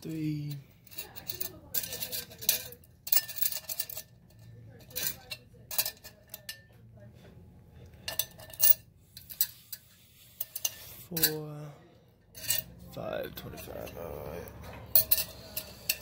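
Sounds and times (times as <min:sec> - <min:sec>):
coins clinking on metal tray: 0:00.8 - 0:06.7, 0:08.1 - 0:09.5, 0:12.3 - 0:12.7, 0:14.6 - 0:16.0.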